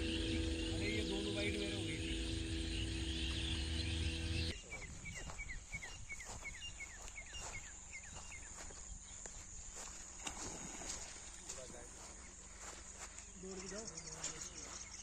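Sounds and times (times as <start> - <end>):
high insect trill: 0.0 - 4.5
hum of held tones: 0.0 - 4.5
bird chirping: 0.0 - 8.7.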